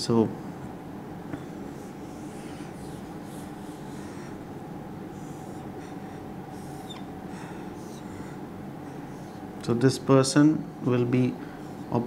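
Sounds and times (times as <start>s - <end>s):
steady low hum: 0.0s - 12.0s
marker drawn across whiteboard: 1.4s - 4.4s.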